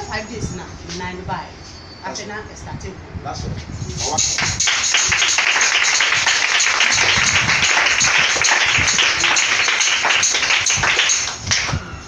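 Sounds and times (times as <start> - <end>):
crowd clapping: 4.4 - 11.9.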